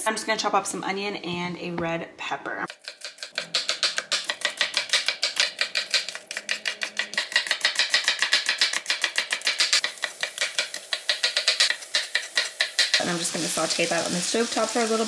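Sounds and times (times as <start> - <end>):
knife chopping on wooden board: 2.7 - 13.0.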